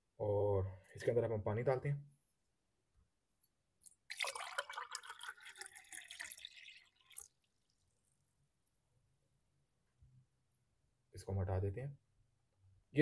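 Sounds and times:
water pouring into a glass: 4.1 - 8.1.

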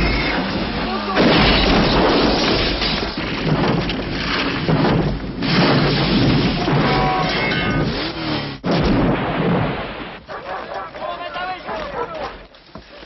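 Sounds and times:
loud rumbling explosion roar: 3.4 - 10.3.

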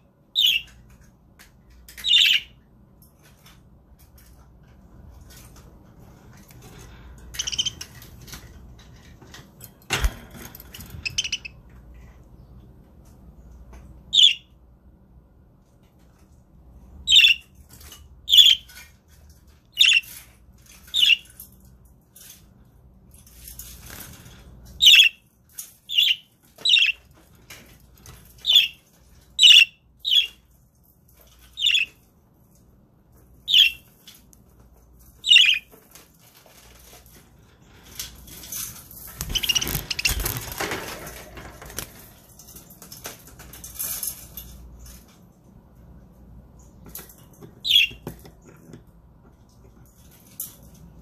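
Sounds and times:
rustling noise: 3.2 - 13.3, 34.0 - 47.7
budgerigars chirping: 7.4 - 7.9, 11.0 - 11.6, 14.2 - 14.4, 17.1 - 17.4, 24.8 - 25.2, 25.9 - 27.0, 28.4 - 28.8, 29.4 - 30.4, 31.6 - 31.9, 33.5 - 33.8, 35.2 - 35.7, 39.3 - 40.3, 47.6 - 48.0.

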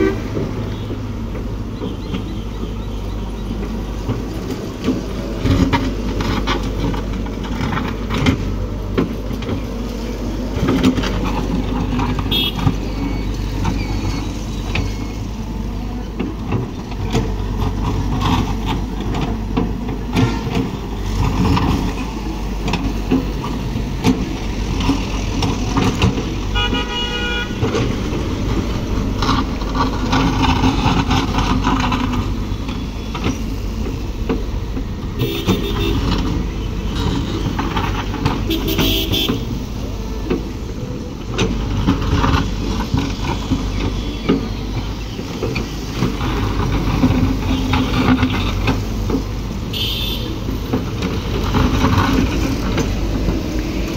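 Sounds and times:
vehicle horn honking: 0.0 - 0.3, 12.3 - 12.8, 26.5 - 27.8, 35.2 - 37.6, 38.4 - 39.5, 49.7 - 50.4
excavator diesel engine: 0.0 - 53.9.

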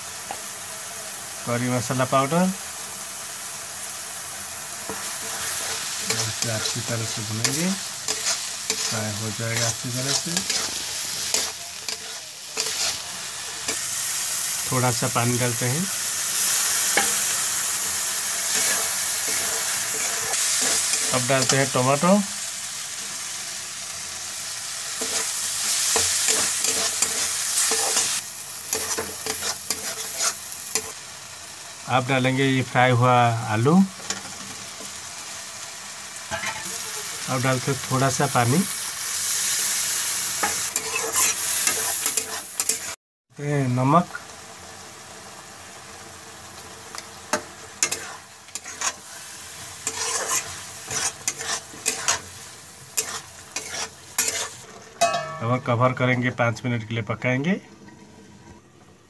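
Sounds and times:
frying sizzle: 0.0 - 59.0
metal spatula scraping a pan: 4.9 - 13.9, 18.5 - 21.8, 25.0 - 31.0, 36.3 - 36.8, 40.4 - 43.0, 46.9 - 55.6.

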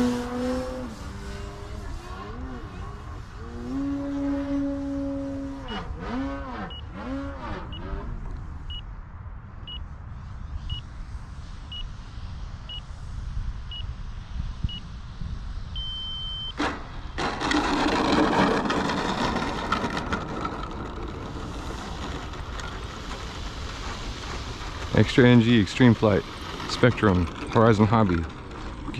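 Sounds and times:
electric motor and propeller whining: 0.0 - 8.8, 15.7 - 28.9
wheels rolling on rough asphalt: 0.0 - 8.8, 16.5 - 28.9
transmitter timer beeps: 15.8 - 16.6.

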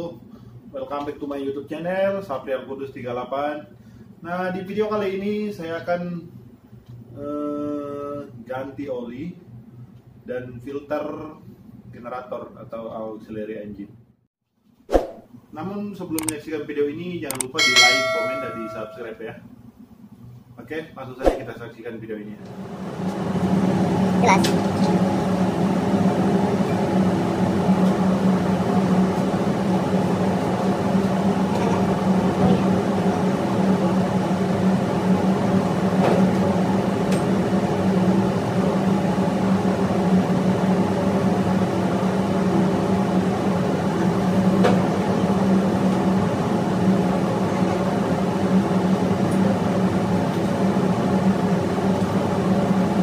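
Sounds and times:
hand tools clicking: 17.3 - 17.7
engine-room machinery drone: 22.4 - 53.0.

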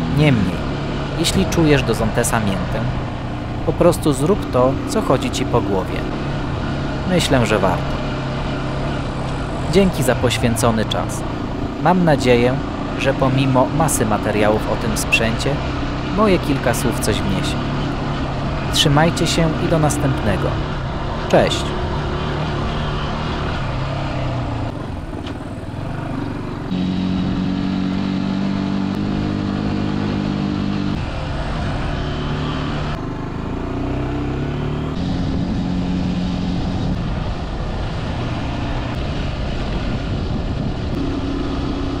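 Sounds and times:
motorcycle engine running: 0.0 - 42.0.

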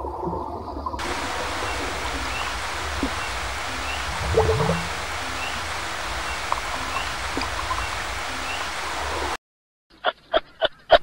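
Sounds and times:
running water: 1.0 - 9.4.

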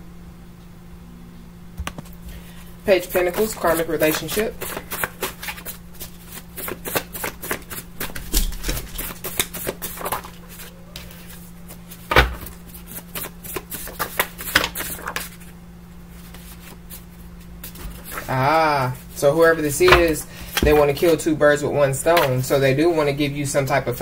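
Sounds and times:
cards being shuffled: 3.0 - 15.5, 16.1 - 19.1.

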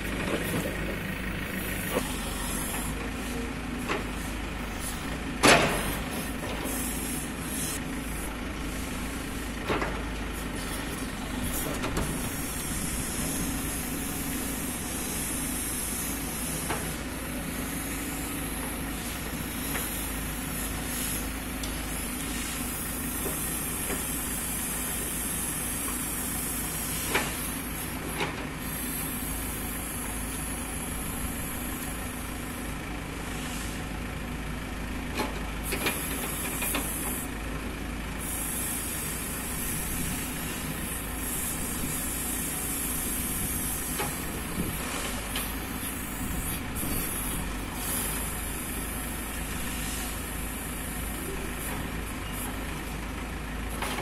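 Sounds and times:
diesel engine running: 0.0 - 54.0.

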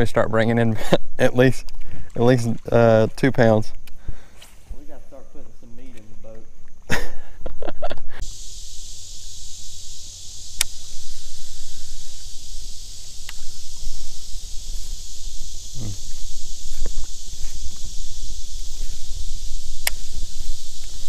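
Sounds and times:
high-pitched insect drone: 2.2 - 21.0
sharp clicks: 10.4 - 10.9, 13.0 - 14.0, 19.7 - 21.0.

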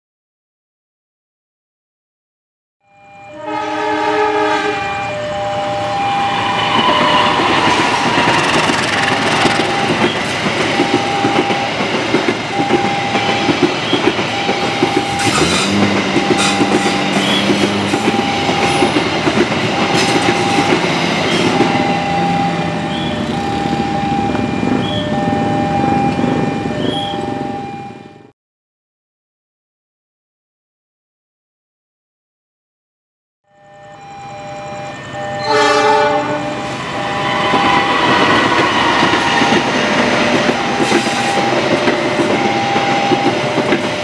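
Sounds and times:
level crossing signal beeping: 2.8 - 3.7, 4.4 - 28.3, 33.5 - 44.0
multi-tone train horn: 2.8 - 11.8, 12.5 - 28.3, 34.5 - 44.0
train wheels clattering: 6.3 - 22.2, 36.4 - 44.0.

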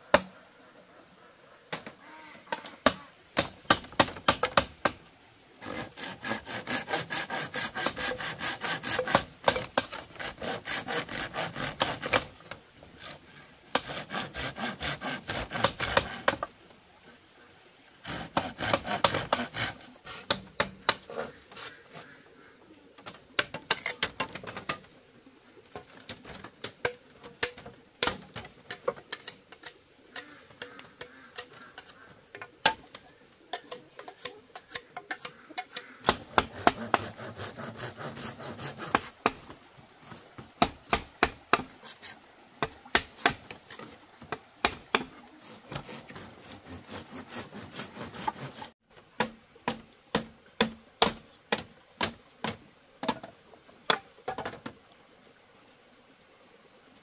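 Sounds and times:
wooden knocks and taps on bamboo: 0.1 - 0.4, 1.7 - 5.1, 18.2 - 21.4, 23.0 - 25.0, 25.7 - 37.2, 38.8 - 41.8, 48.2 - 54.8
rasping sawing noise: 5.6 - 16.5, 18.0 - 22.2, 33.7 - 39.5, 44.6 - 48.8.

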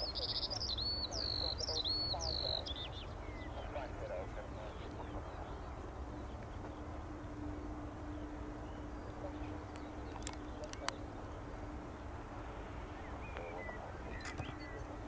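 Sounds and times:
faint bird chirps: 0.0 - 11.7, 12.8 - 15.0
distant jet engines rumbling: 0.0 - 15.0
faint steady hum: 0.0 - 15.0.

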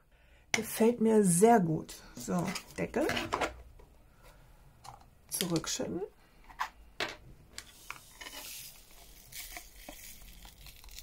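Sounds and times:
rhinestones pouring into plastic pot: 7.8 - 11.0.

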